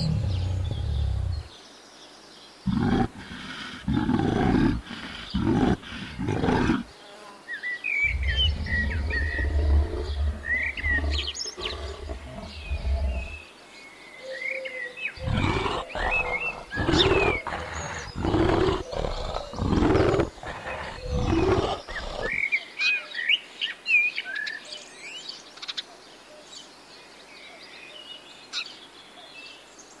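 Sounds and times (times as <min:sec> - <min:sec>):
bear low hum: 0:00.0 - 0:01.5, 0:02.7 - 0:06.9, 0:08.0 - 0:13.4, 0:15.2 - 0:22.4
bears calling loudly: 0:00.0 - 0:01.5, 0:02.7 - 0:06.9, 0:08.0 - 0:13.4, 0:15.2 - 0:22.4
small birds chirping: 0:00.0 - 0:07.0, 0:07.6 - 0:22.6.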